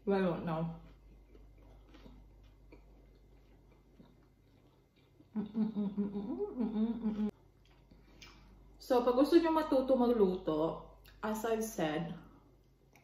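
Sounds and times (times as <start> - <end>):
quiet chewing: 0.7 - 6.1, 7.0 - 8.8, 12.5 - 13.0
woman humming mmm: 5.3 - 7.4.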